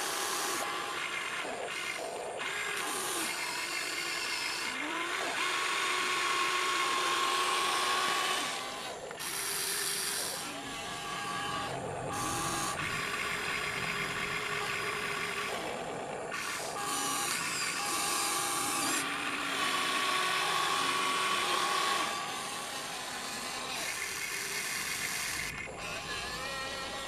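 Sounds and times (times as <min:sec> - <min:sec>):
toy excavator motors whining: 0:00.0 - 0:27.0.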